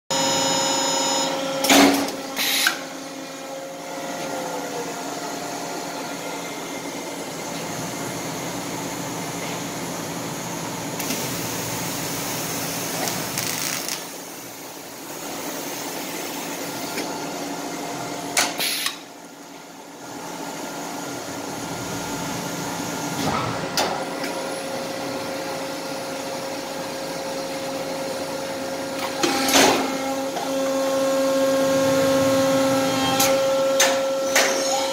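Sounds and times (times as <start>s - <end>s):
machine hum with held tones: 0.1s - 12.1s.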